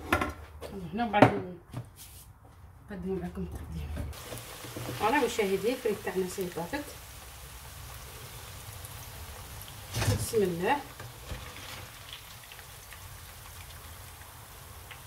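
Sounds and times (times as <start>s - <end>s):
fries sizzling in hot oil: 4.1s - 15.0s.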